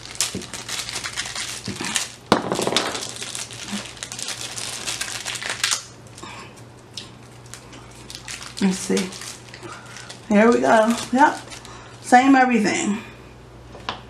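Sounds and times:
plastic bag snap: 0.0s - 5.9s
plastic bag crinkling: 0.0s - 6.0s, 7.2s - 12.0s.

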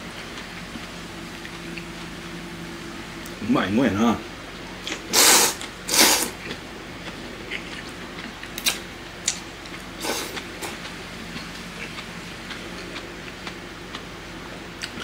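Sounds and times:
chewing: 4.8s - 14.1s.

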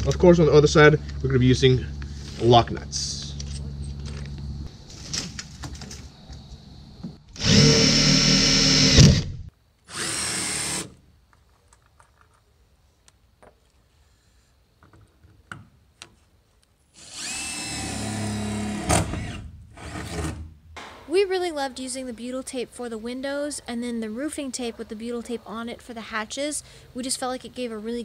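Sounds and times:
power drill running: 7.3s - 9.2s, 9.9s - 10.9s, 17.0s - 19.4s.

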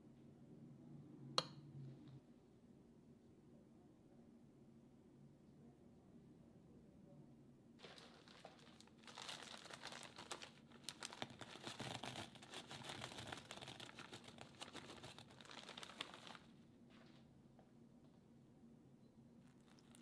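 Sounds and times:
marshmallows poured into glass bowl: 7.8s - 16.5s.

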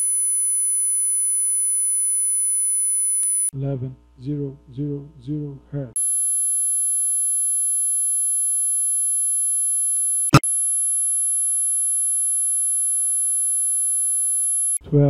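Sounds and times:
high sine test tone: 0.0s - 3.5s, 6.0s - 14.8s.

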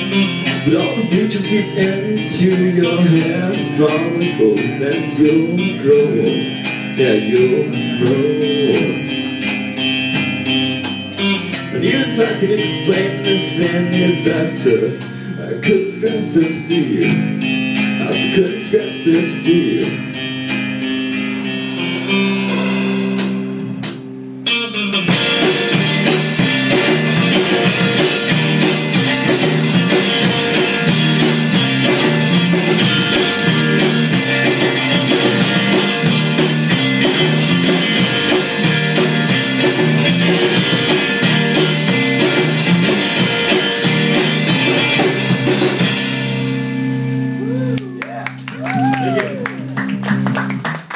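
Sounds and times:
drum kit beat: 0.0s - 50.9s
electric guitar chords: 0.0s - 50.9s
rock band playing: 0.0s - 50.9s.

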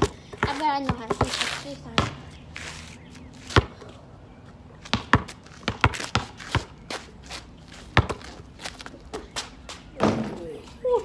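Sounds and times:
basketball bouncing on court: 0.0s - 1.3s, 4.9s - 6.7s, 7.9s - 8.2s.

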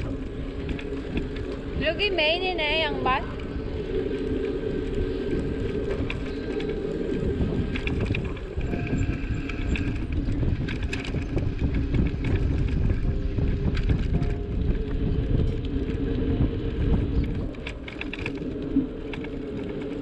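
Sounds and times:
engine rumbling: 0.0s - 20.0s
light rattles and ticks: 5.2s - 20.0s.

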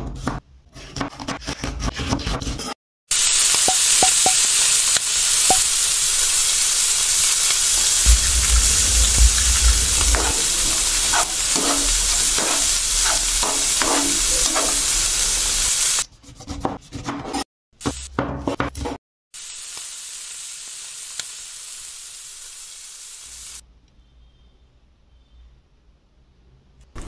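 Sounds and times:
food sizzling in a frying pan: 3.1s - 16.0s, 19.4s - 23.6s
metal spatula scraping: 7.2s - 17.4s.

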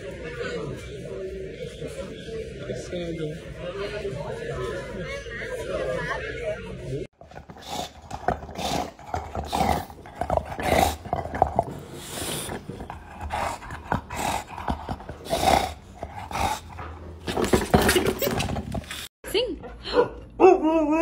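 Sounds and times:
dog growling: 7.2s - 19.0s
dog breathing noisily: 7.2s - 19.1s
dog chewing rubber ball: 7.2s - 19.1s.

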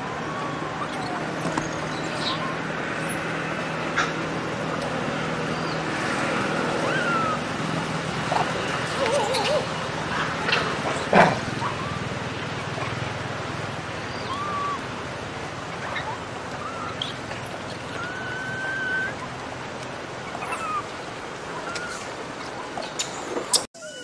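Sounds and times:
outdoor background noise: 0.0s - 24.0s
baby monkey crying: 0.2s - 3.2s, 6.7s - 7.5s, 14.1s - 14.9s, 15.8s - 19.3s, 20.3s - 20.9s, 23.8s - 24.0s
thin whistling coos: 0.3s - 2.6s, 15.8s - 19.2s, 22.7s - 24.0s.

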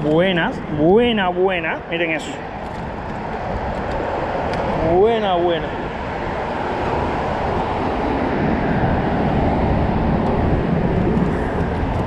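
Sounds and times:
highway traffic rumble: 0.0s - 12.0s.

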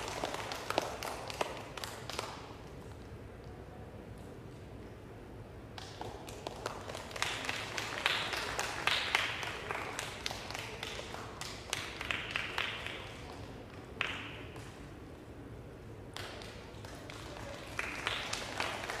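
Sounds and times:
audience applause: 0.0s - 2.4s, 6.2s - 13.3s, 16.8s - 19.0s.

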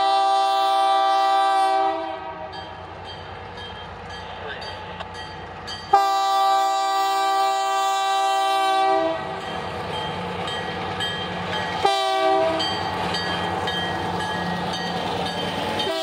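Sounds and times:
locomotive horn: 0.0s - 2.7s, 5.9s - 9.4s, 11.8s - 12.8s, 15.8s - 16.0s
wheels clicking over rail joints: 12.5s - 16.0s.

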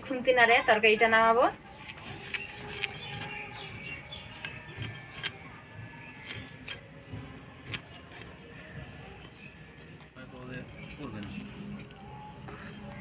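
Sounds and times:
fish scales scraping on blade: 1.5s - 3.4s, 4.2s - 5.4s, 7.6s - 8.4s.

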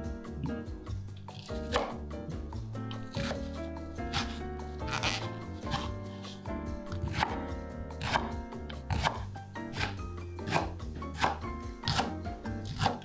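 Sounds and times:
background music: 0.0s - 13.0s
knife slicing leek on board: 1.4s - 2.0s, 2.9s - 7.4s, 8.0s - 13.0s.

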